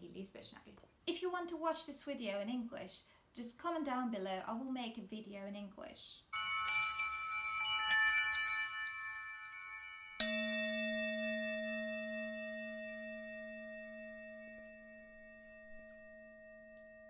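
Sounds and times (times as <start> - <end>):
bright struck chime hit: 6.4 - 17.0
shimmering chime tones: 6.4 - 17.0.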